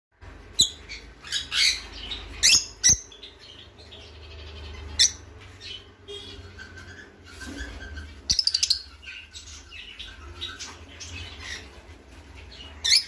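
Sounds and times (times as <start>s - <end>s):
parrot squawking: 0.6s - 3.2s.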